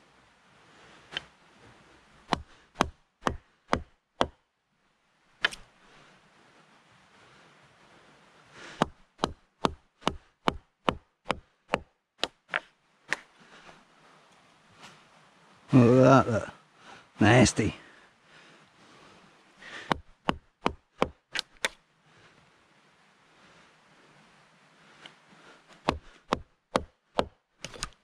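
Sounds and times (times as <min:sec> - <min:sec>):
wood chopping strikes: 0:02.2 - 0:04.4, 0:05.4 - 0:05.6, 0:08.7 - 0:13.3, 0:19.8 - 0:21.8, 0:25.8 - 0:28.0.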